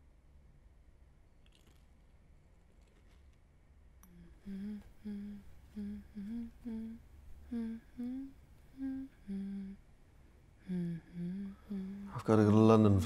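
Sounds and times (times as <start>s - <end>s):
woman humming: 4.0s - 9.8s, 10.6s - 12.2s.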